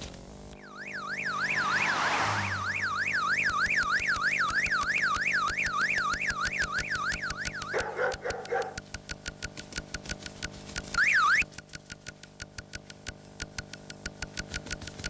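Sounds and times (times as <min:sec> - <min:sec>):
electronic alarm tone sweeping: 0:00.6 - 0:07.8
rapid regular ticking: 0:03.0 - 0:15.0.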